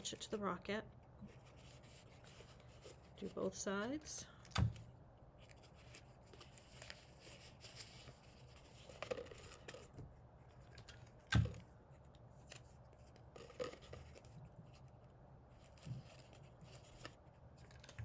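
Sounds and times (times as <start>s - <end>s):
paper and tape rustling: 5.4s - 18.0s.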